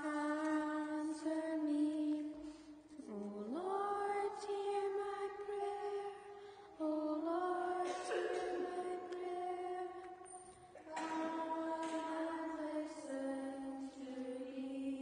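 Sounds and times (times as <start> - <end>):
voices singing a chant-like refrain: 3.0 - 15.0.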